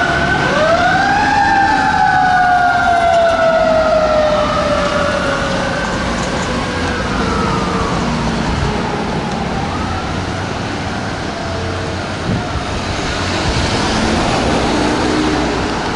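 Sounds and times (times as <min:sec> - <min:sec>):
siren tones gliding: 0:00.0 - 0:13.0
road and engine noise: 0:00.0 - 0:15.9.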